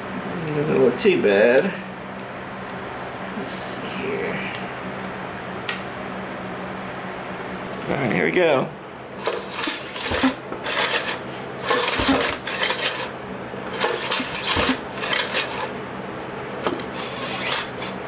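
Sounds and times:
recoil starter rattling: 0:09.2 - 0:15.7
outboard motor turning over: 0:09.2 - 0:15.8, 0:16.7 - 0:18.0.

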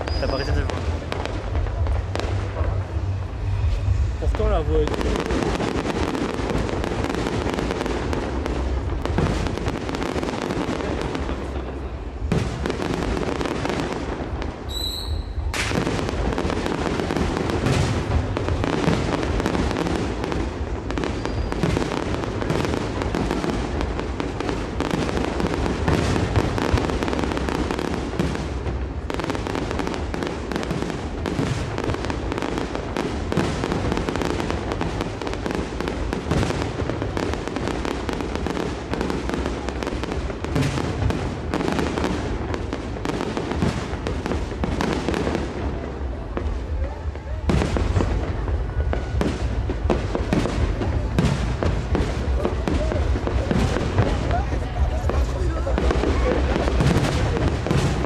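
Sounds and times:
fireworks bursting and crackling: 0:00.0 - 0:58.0
high whistle: 0:14.7 - 0:15.5, 0:21.2 - 0:21.6.

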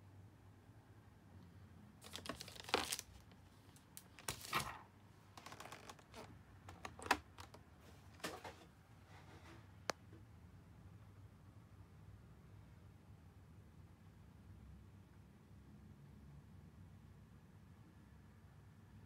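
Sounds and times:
plastic pouch rustling: 0:02.0 - 0:08.4.

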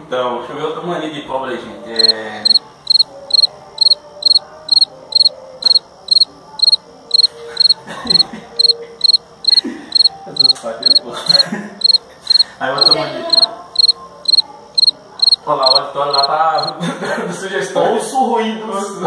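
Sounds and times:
cricket chirping: 0:01.9 - 0:16.8.

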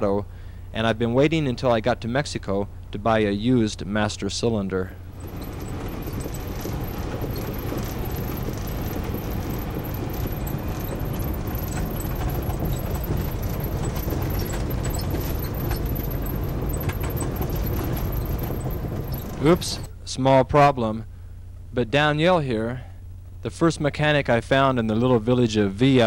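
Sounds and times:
vehicle engine and road rumble: 0:04.4 - 0:20.0
loose parts rattling: 0:05.0 - 0:19.9.

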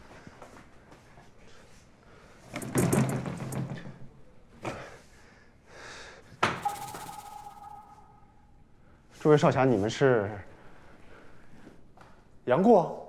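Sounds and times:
ringing tone: 0:06.6 - 0:08.6.

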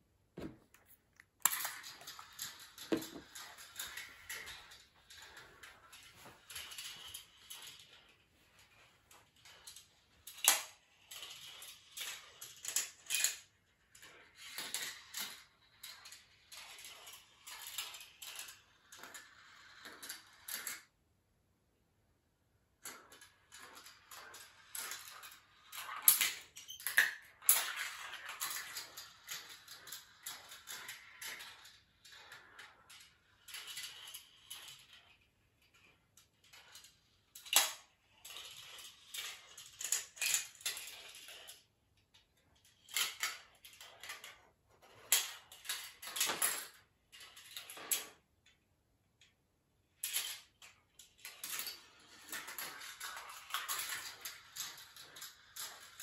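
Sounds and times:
marbles rolling on plastic rails: 0:00.8 - 0:21.0, 0:22.4 - 0:48.6, 0:49.2 - 0:56.0
marbles clicking and clacking: 0:01.2 - 0:08.2, 0:09.1 - 0:20.9, 0:22.8 - 0:41.7, 0:50.0 - 0:56.0.

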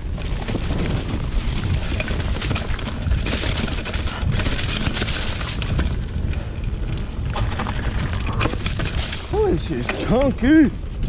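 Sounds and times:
bike clattering over bumps: 0:00.0 - 0:11.0
tyres rolling over leaves and dirt: 0:00.0 - 0:11.0
wind rumbling on microphone: 0:00.0 - 0:11.0.

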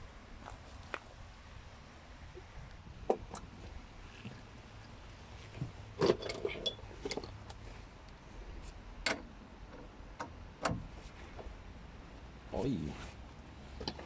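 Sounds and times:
wrench clinking against metal: 0:06.0 - 0:07.4.

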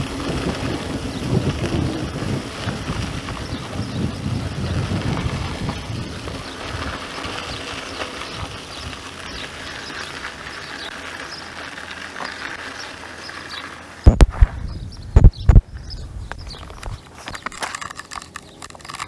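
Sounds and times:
wind buffeting microphone: 0:00.0 - 0:10.9, 0:14.0 - 0:17.5
bike tyres crunching on grit: 0:00.0 - 0:19.0.

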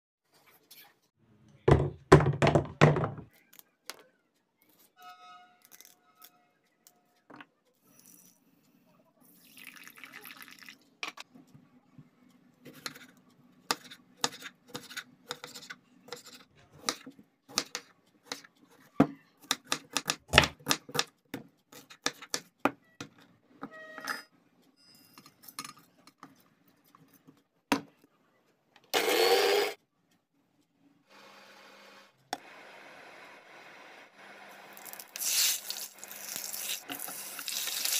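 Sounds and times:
mixer grinder motor: 0:28.9 - 0:29.8.

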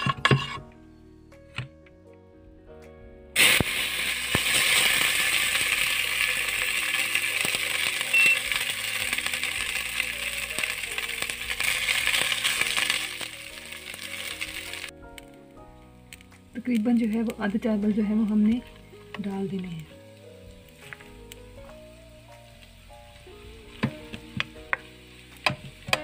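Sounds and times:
background music: 0:00.0 - 0:26.0
loud steady hiss: 0:03.4 - 0:14.9, 0:18.7 - 0:26.0.

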